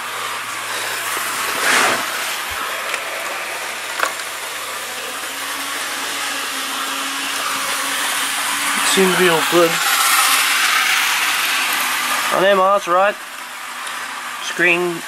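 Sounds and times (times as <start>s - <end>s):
model train motor whirring: 0.0s - 15.0s
brief rush: 1.5s - 2.3s.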